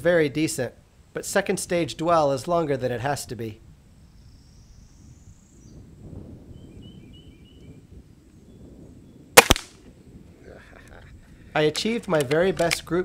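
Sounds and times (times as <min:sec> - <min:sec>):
faint bird chirps: 0:04.0 - 0:05.9, 0:06.5 - 0:09.3
air rifle shot crack: 0:09.4 - 0:09.8.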